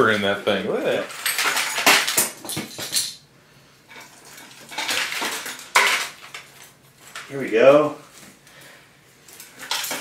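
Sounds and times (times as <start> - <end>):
plastic and metal pieces rattling: 0.9 - 3.2, 4.0 - 7.3, 9.3 - 10.0.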